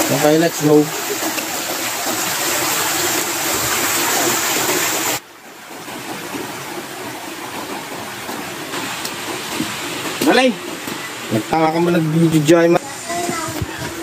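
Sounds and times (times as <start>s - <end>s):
stream rushing over rocks: 0.0s - 14.0s.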